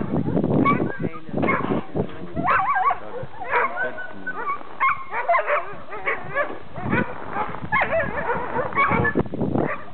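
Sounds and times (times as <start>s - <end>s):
dogs barking and yelping: 0.0s - 9.9s.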